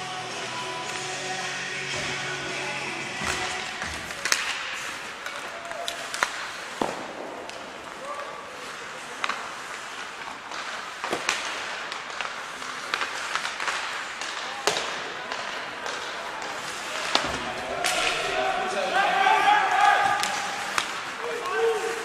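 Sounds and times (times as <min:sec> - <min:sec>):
skates hissing on ice: 0:00.2 - 0:22.0
hockey sticks striking puck: 0:01.9 - 0:22.0
puck hitting boards: 0:03.2 - 0:08.0, 0:09.2 - 0:22.0
players shouting: 0:14.3 - 0:22.0.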